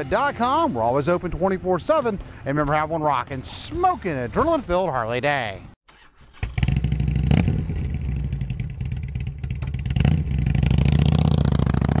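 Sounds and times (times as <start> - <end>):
motorcycle engine revving: 6.0 - 12.0.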